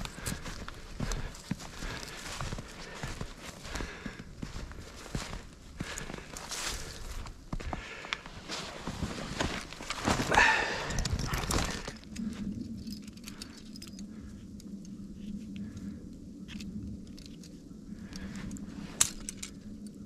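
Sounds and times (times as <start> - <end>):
footsteps through snow: 0.0 - 12.5.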